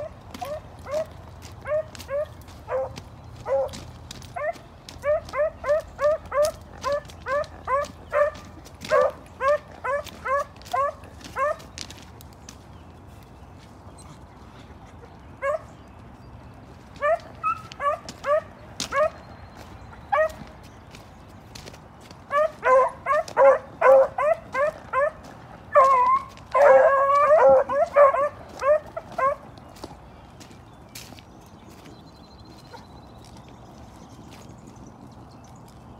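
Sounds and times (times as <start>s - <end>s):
loud dog bark: 0.0s - 3.8s, 4.4s - 11.6s, 17.0s - 19.2s, 20.1s - 20.4s, 22.3s - 29.4s
hounds yelping: 0.0s - 12.0s, 15.0s - 15.8s, 16.9s - 20.8s, 22.3s - 29.9s.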